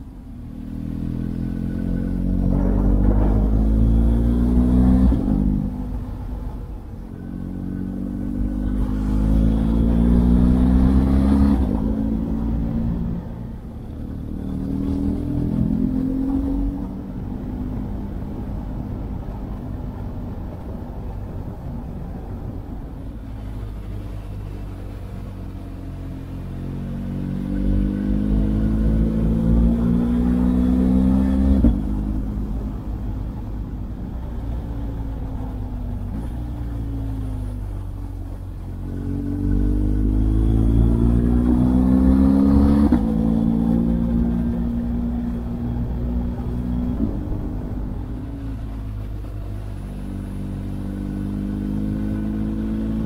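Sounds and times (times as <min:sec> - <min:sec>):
motorcycle engine revving: 0:00.6 - 0:06.0, 0:07.2 - 0:18.4, 0:23.7 - 0:32.7, 0:38.6 - 0:53.0.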